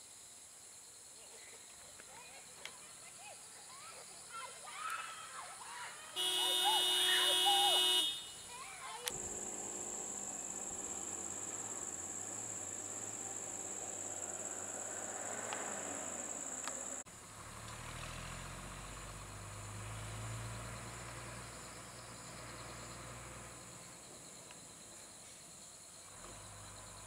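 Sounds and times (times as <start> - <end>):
insects droning: 0.0 - 27.0
vehicle passing: 6.2 - 8.3, 9.1 - 23.9
vehicle engines on road: 6.2 - 27.0.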